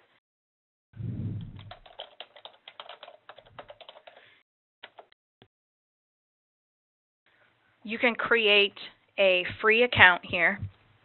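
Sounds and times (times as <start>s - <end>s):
computer keyboard typing: 1.5s - 5.1s.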